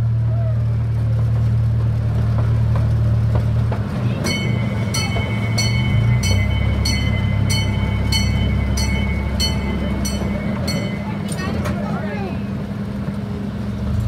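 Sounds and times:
train engine drone: 0.0s - 14.0s
train bell ringing: 4.1s - 12.0s.

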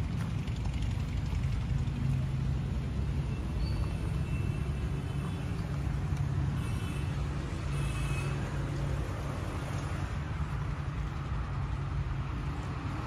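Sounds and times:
diesel tractor engine idling: 0.0s - 6.0s.

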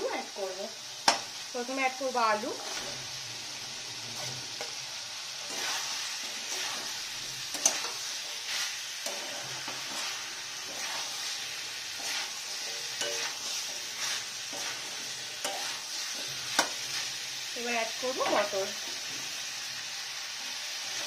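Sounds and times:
frying sizzle: 0.0s - 21.0s
spatula scraping pan: 2.5s - 3.1s, 5.4s - 19.4s.

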